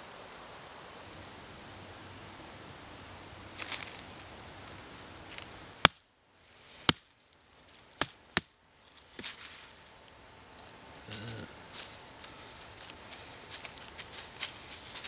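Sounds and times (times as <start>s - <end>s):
rustling handling noise: 3.5s - 5.5s, 8.8s - 15.0s.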